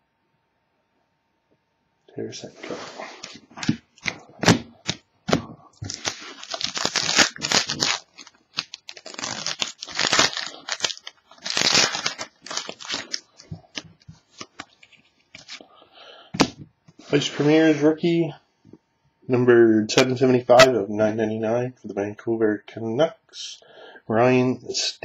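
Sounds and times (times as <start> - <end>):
foil wrapper ripping and crinkling: 3.6 - 15.6.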